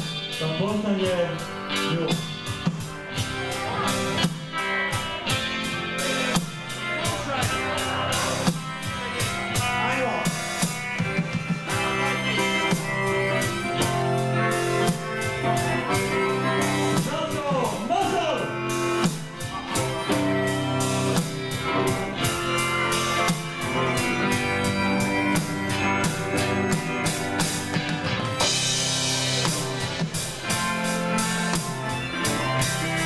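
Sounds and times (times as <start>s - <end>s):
drum kit beat: 0.0s - 33.0s
live band playing guitars: 0.0s - 33.0s.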